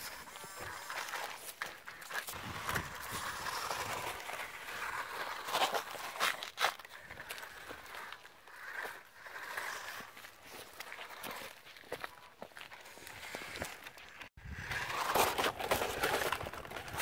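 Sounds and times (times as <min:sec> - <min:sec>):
sharp scrapes on rock: 0:00.0 - 0:12.0
footsteps on gravel: 0:00.0 - 0:14.3.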